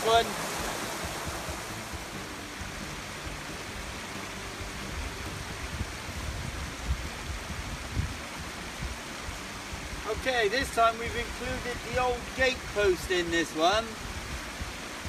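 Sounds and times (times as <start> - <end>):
low thumps: 0.0 - 3.8
river rushing over stones: 0.0 - 15.0.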